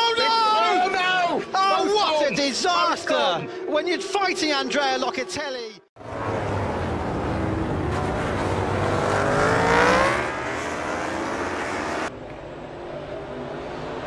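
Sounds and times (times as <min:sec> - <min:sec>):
racing motorcycle engines: 0:06.0 - 0:14.0.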